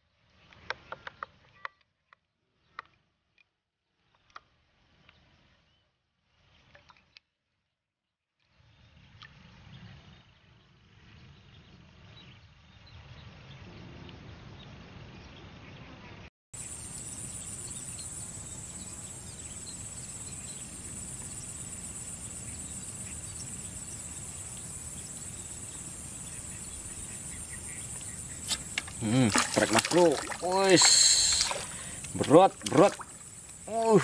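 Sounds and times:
insects chirring: 16.6 - 34.0.

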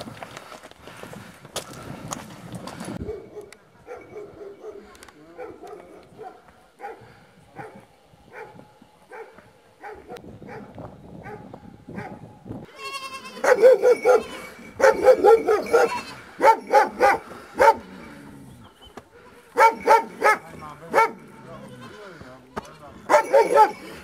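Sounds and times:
dog barking: 3.0 - 12.2, 13.4 - 18.0, 19.2 - 21.3, 23.1 - 24.0.

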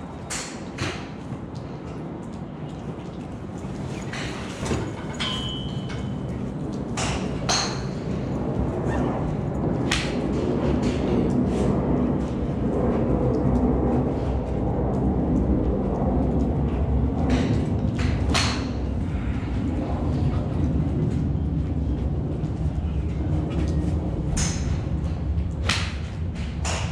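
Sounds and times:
steady low rumble: 0.0 - 26.9
golf clubs striking balls: 7.0 - 8.1, 17.3 - 18.9, 25.6 - 26.9.

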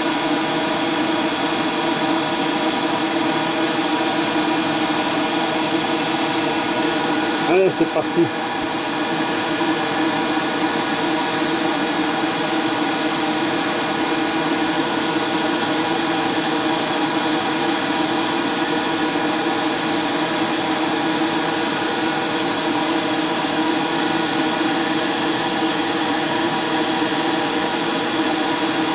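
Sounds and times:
extractor fan hum: 0.0 - 28.9
airbrush air hiss: 0.3 - 6.7, 7.5 - 14.3, 16.4 - 18.4, 19.7 - 21.8, 22.6 - 23.6, 24.6 - 28.9.

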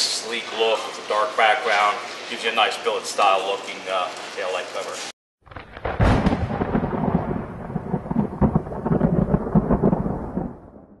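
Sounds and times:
rolling thunder with crackles: 5.4 - 11.0.

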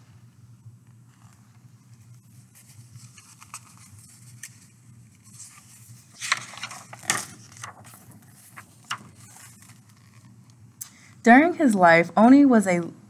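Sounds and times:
low steady hum: 0.0 - 13.0
book pages turning: 1.0 - 10.5.

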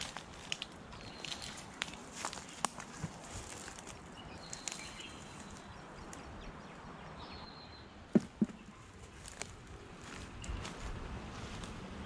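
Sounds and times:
dull thumps: 8.1 - 8.7.

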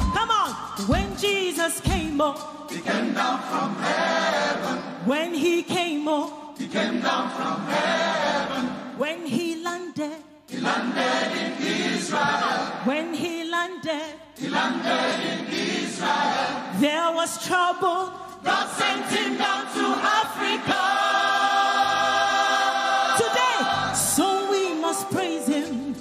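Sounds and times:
woman singing lead with vibrato: 0.0 - 2.6, 5.0 - 6.6, 9.0 - 10.4, 12.8 - 14.4, 16.7 - 18.4, 23.1 - 26.0
gospel choir singing: 2.6 - 9.4, 10.4 - 26.0.

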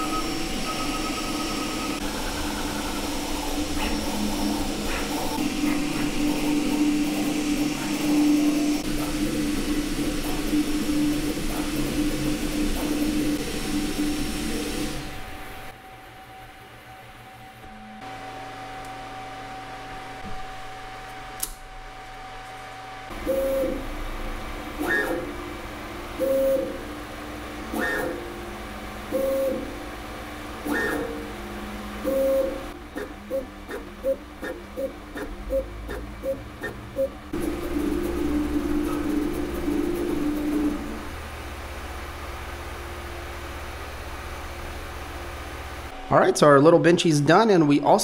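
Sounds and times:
stepper motors whining: 0.0 - 25.6, 30.6 - 43.1
cooling fans hissing: 0.0 - 48.0
steady hum: 0.0 - 48.0.

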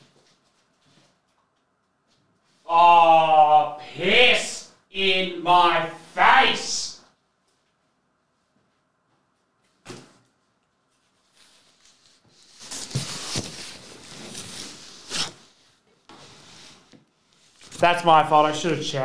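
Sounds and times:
cardboard box scraping and rustling: 12.4 - 15.4.

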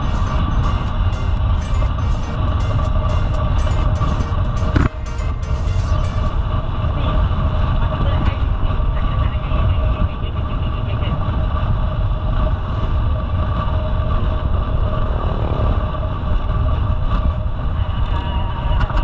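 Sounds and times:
road noise: 0.0 - 19.0
wind buffeting microphone: 6.2 - 19.0.

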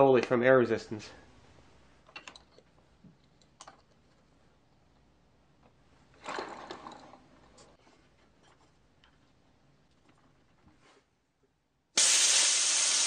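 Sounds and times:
wooden parts clicking and knocking: 2.0 - 4.3.

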